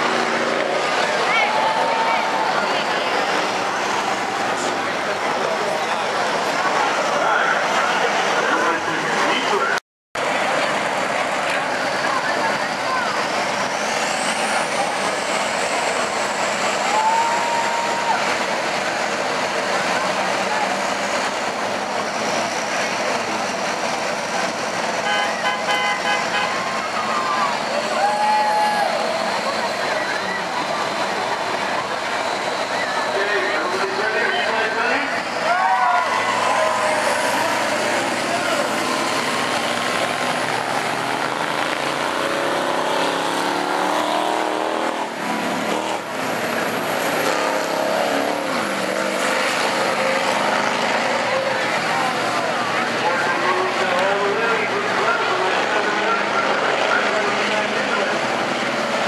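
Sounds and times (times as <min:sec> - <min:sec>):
bus engines racing: 0:00.0 - 0:59.0
crowd noise: 0:00.0 - 0:59.0
horn short toots: 0:25.0 - 0:26.7.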